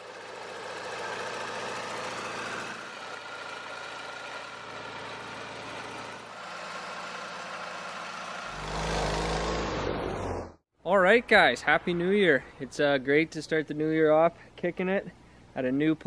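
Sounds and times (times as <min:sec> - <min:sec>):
small engine idling: 0:00.0 - 0:10.1.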